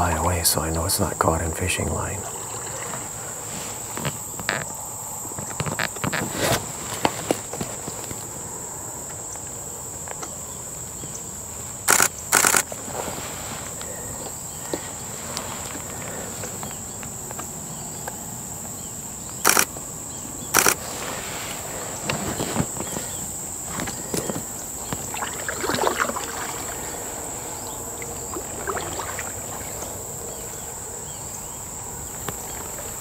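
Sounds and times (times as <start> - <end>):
high-pitched insect trill: 0.0 - 33.0
sharp clicking bursts: 11.9 - 12.7, 19.3 - 19.8, 20.5 - 20.8.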